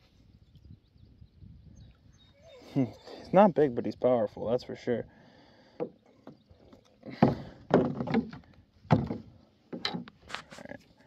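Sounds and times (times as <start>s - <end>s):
knocks against plastic kayak hull: 7.1s - 10.1s.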